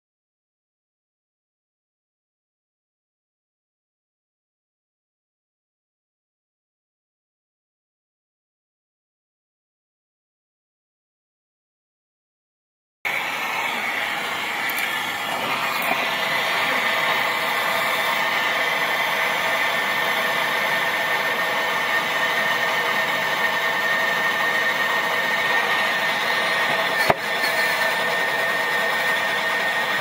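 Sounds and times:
gas torch flame hissing: 13.1 - 30.0.

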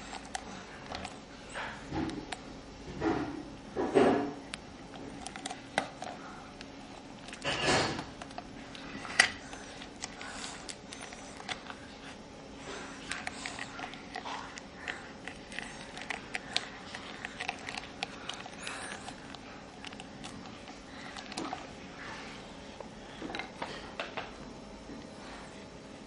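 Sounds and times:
low steady hum: 0.0 - 26.0
faint breathing: 8.8 - 19.8, 24.9 - 26.0.

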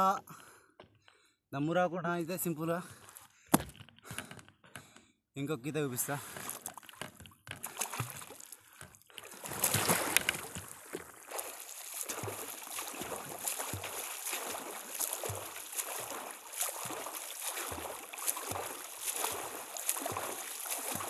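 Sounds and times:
swimming strokes splashing: 7.6 - 21.0
loud splash into water: 11.3 - 21.0.

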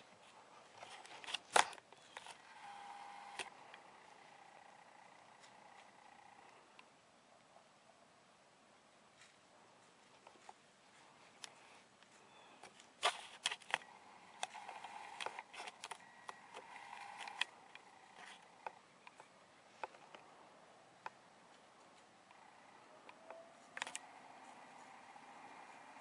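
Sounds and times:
faint steady hum: 0.0 - 26.0
sharp clicks: 1.0 - 6.9, 12.6 - 20.2, 21.8 - 26.0.

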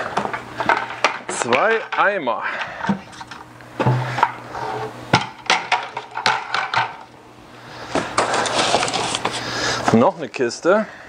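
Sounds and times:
rustling scrape in cardboard box: 8.2 - 9.6.

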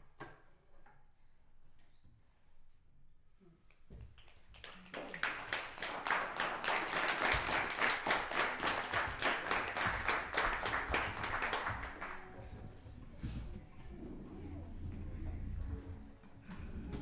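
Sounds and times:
audience applauding: 4.2 - 12.4.

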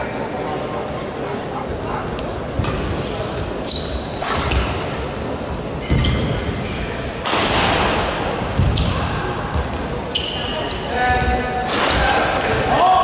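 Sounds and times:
shoes squeaking: 1.8 - 5.0, 5.7 - 7.1, 8.6 - 11.4
racket hitting shuttlecock: 4.2 - 5.0, 7.2 - 9.0, 11.6 - 12.7.

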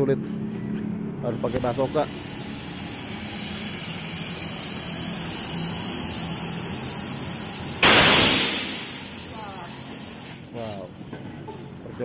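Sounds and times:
loud blast of air: 1.5 - 10.6
steady air hiss: 1.5 - 11.0.

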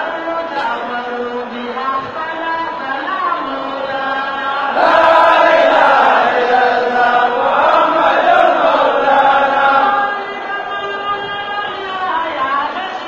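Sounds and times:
crowd of men chanting: 3.6 - 13.0.

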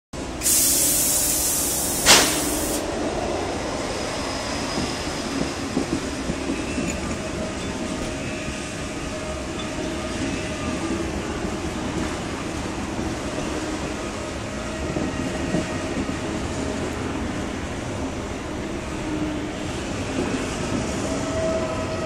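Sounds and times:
train running noise: 0.2 - 22.0
train brake hiss: 0.3 - 2.9.

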